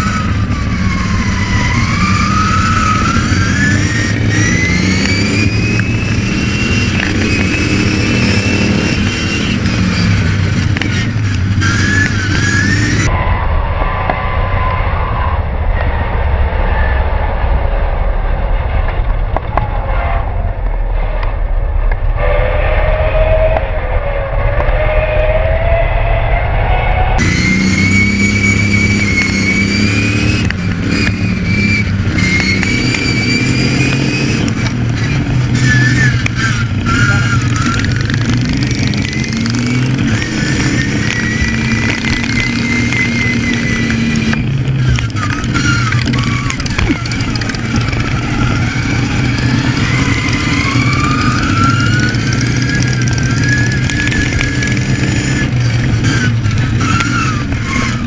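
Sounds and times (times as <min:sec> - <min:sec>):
ride-on mower engine revving: 0:00.0 - 0:13.1, 0:27.2 - 0:58.0.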